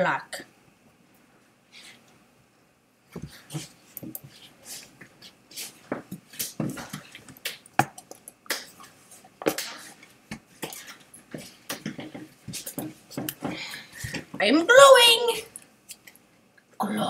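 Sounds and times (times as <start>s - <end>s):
knocks taps and rustles: 5.0s - 14.4s.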